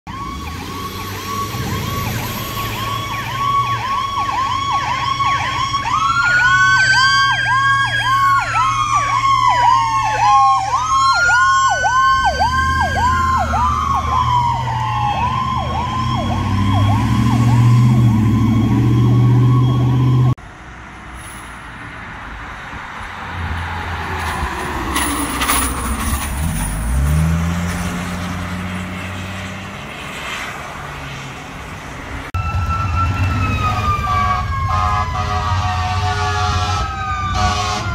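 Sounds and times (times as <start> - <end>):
deep siren tone: 0.1 - 20.4, 32.4 - 37.9
electronic siren yelp: 0.1 - 20.4, 32.4 - 37.9
siren wail rising and falling: 0.1 - 20.4, 23.2 - 37.9.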